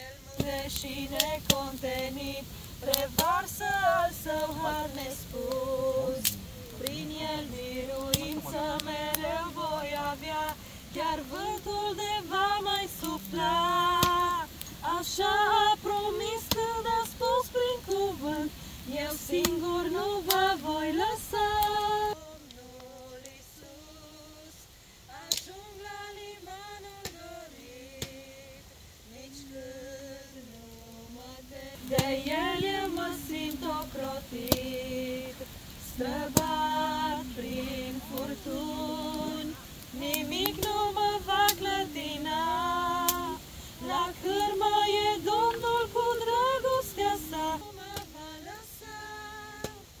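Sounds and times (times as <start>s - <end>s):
campfire crackling: 0.0s - 50.0s
woman singing: 0.0s - 50.0s.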